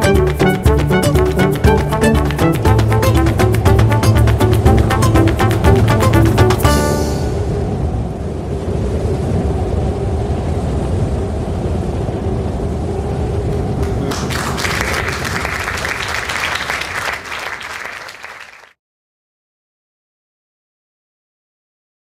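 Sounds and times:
audience applause: 0.0s - 7.2s, 13.6s - 18.8s.

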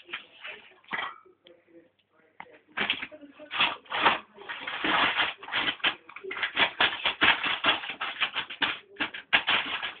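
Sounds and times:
dog claws clicking on tile: 2.8s - 10.0s.

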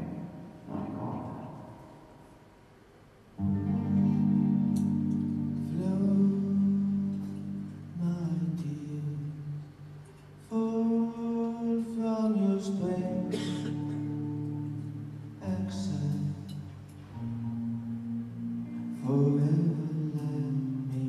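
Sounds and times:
guitar and keyboard chords: 0.0s - 2.1s, 3.4s - 9.6s, 12.6s - 21.0s.

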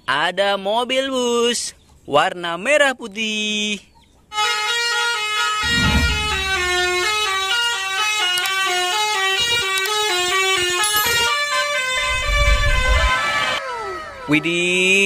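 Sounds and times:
musical multi-tone bus horn: 4.3s - 12.4s.

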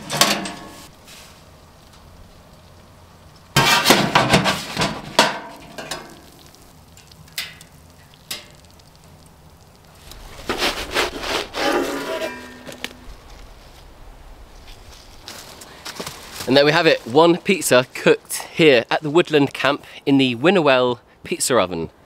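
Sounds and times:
metal peel scraping on steel: 3.6s - 6.1s, 10.5s - 13.0s.

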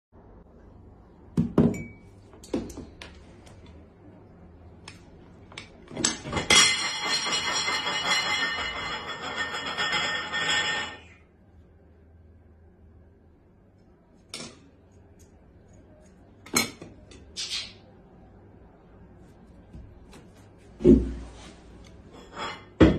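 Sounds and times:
cutlery and crockery clinking: 5.6s - 11.1s.

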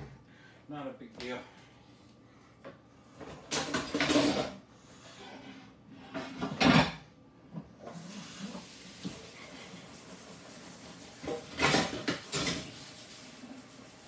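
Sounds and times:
clattering stove parts: 3.4s - 4.6s
kitchen tap running: 7.8s - 14.0s.

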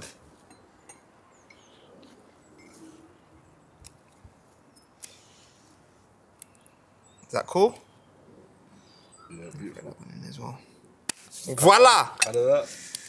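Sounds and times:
faint bird chirps: 0.6s - 3.9s, 6.4s - 10.3s
sharp clicks: 6.3s - 6.8s.

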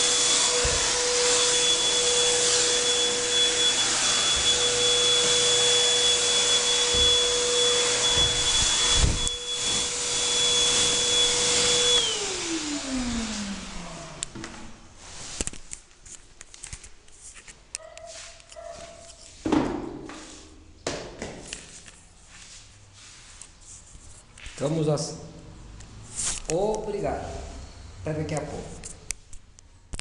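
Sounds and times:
electric air blower whining: 0.0s - 15.4s.

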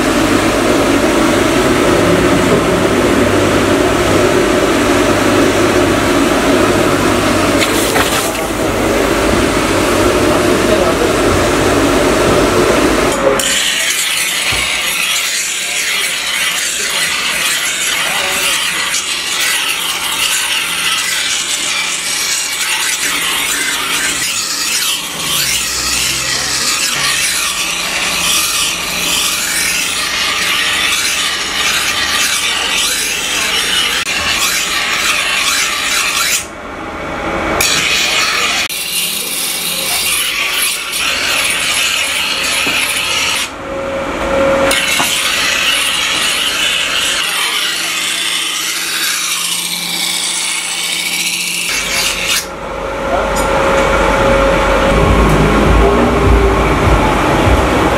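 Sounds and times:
steel blade grinding on wheel: 12.8s - 36.5s, 37.6s - 43.5s, 44.6s - 52.5s.

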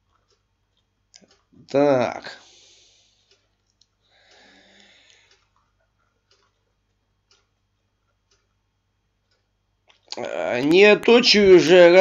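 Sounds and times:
faint ticks: 3.1s - 8.6s.

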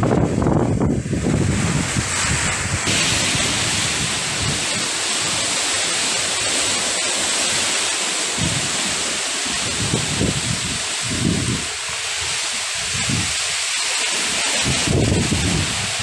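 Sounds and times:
wind and rain through trees: 0.0s - 16.0s
wind gusts buffeting microphone: 0.0s - 16.0s.

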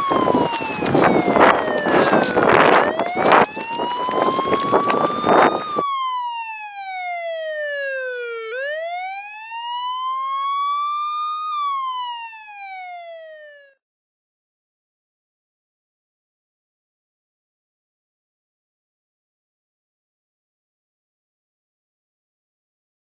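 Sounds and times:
wailing siren: 0.0s - 13.8s.

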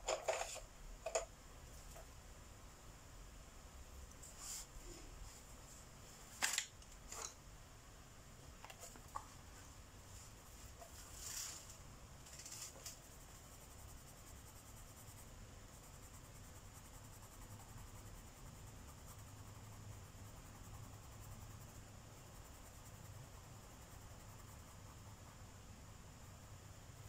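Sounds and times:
steady hiss: 0.0s - 27.0s
soft pencil strokes: 4.0s - 6.2s, 8.7s - 27.0s.

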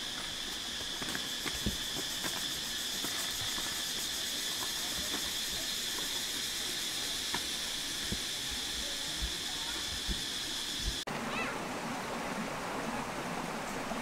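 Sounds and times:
bare feet stepping on rocks: 0.0s - 6.1s
high insect droning: 0.0s - 12.1s.

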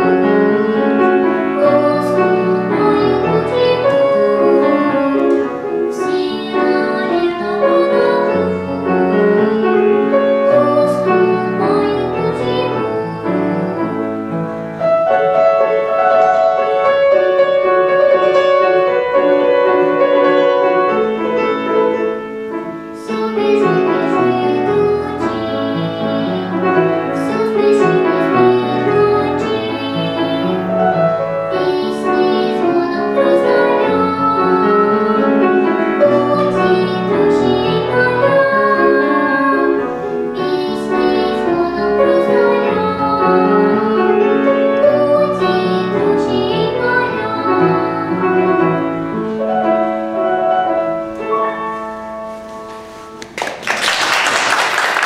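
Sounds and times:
young girl singing: 0.0s - 14.5s, 15.1s - 49.6s
grand piano accompaniment: 0.0s - 55.0s.

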